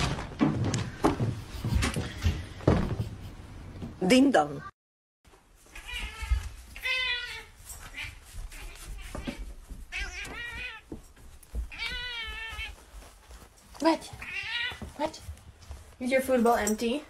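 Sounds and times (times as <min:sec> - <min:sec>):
cat meowing: 0:05.7 - 0:10.9, 0:11.7 - 0:12.8, 0:14.2 - 0:14.9.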